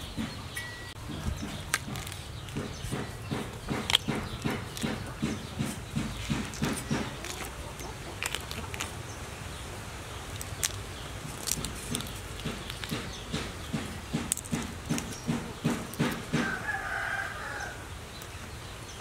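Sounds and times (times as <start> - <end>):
prawn shells cracking: 1.1 - 9.1, 10.2 - 17.1.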